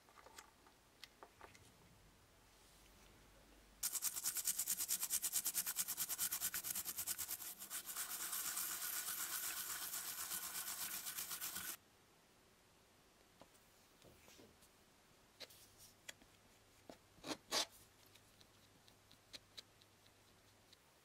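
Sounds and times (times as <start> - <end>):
toothbrush scrubbing metal: 3.8 - 11.8.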